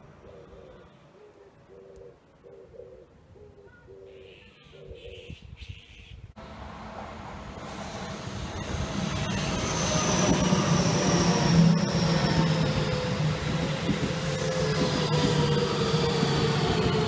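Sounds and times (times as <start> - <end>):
high electric motor whine: 6.4 - 17.0
train wheels rumbling on rails: 6.4 - 17.0.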